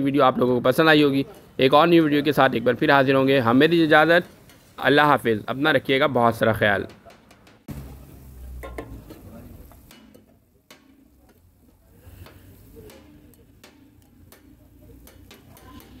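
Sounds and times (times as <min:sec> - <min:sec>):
metal cookware clicking and tapping: 0:04.3 - 0:04.8, 0:06.6 - 0:07.7, 0:08.6 - 0:16.0.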